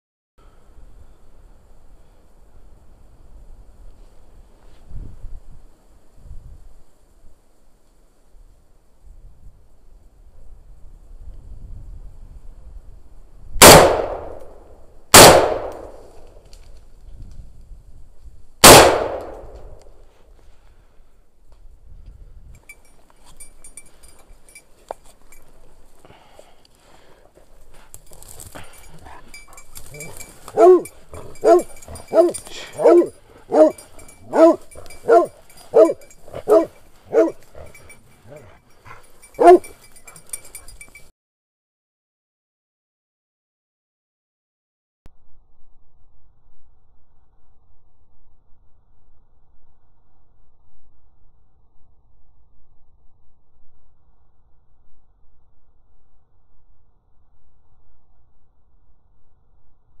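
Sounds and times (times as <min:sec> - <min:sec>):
rifle shots with echo: 0:13.6 - 0:16.1, 0:18.6 - 0:19.7
dog barking: 0:29.9 - 0:39.8.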